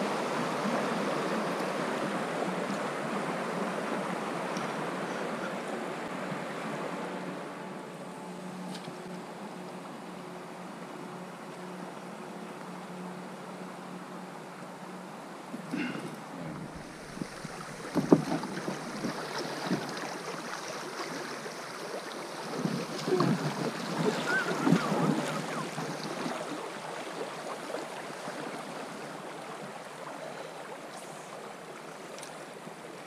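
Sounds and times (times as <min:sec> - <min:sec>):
fast river current washing: 0:00.0 - 0:33.0
water splashes: 0:15.5 - 0:33.0
knocks on inflatable boat: 0:17.9 - 0:18.8.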